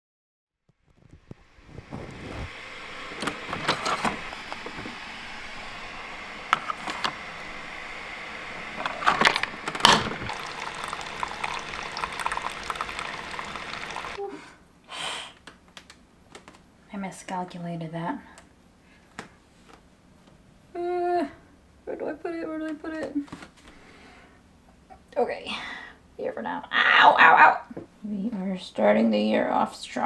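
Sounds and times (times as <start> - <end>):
water running through coffee maker: 1.7 - 14.2.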